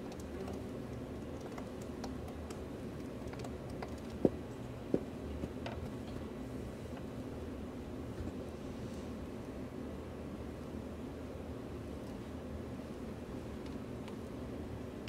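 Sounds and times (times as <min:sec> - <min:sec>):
light clicks and taps: 0:00.0 - 0:06.2.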